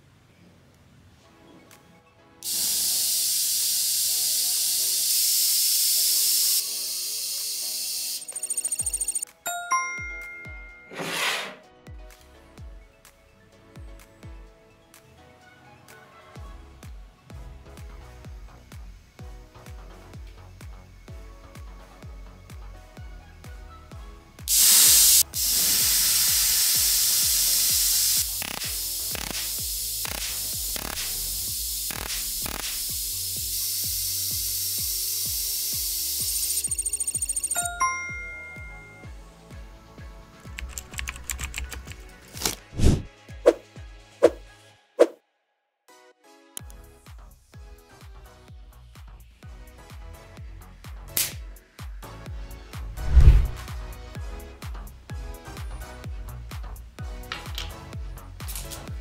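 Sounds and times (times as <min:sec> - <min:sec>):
electrical corona discharge hissing: 0:02.4 - 0:08.7, 0:24.5 - 0:36.9.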